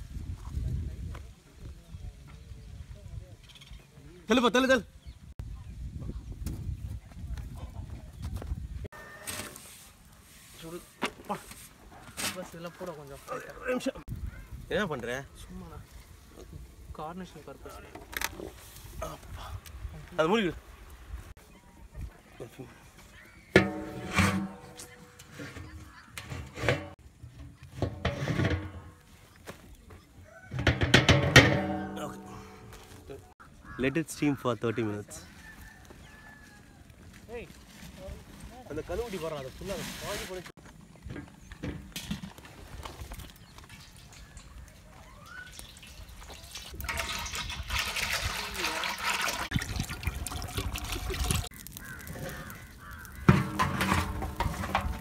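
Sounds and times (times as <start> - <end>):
metal lid scraping and clanking on pot: 23.5 - 29.0, 30.6 - 32.6, 53.2 - 55.0
crow cawing: 33.4 - 34.9, 51.6 - 53.4
oil pouring into metal pot: 45.6 - 51.5.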